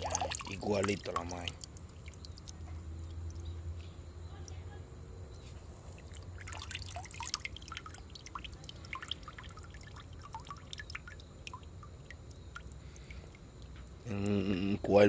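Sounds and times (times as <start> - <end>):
water pouring off a hand: 0.0 - 3.3, 6.0 - 11.1
water dripping into pond: 0.0 - 4.7, 5.3 - 15.0.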